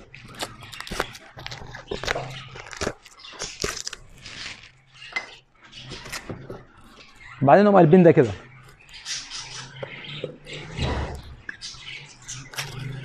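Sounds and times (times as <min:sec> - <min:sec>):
plastic film peeling: 0:00.0 - 0:05.1.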